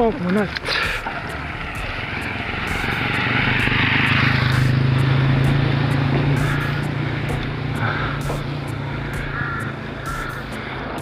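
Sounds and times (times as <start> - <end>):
motorcycle passing by: 0.0 - 11.0
small engine drone: 0.0 - 11.0.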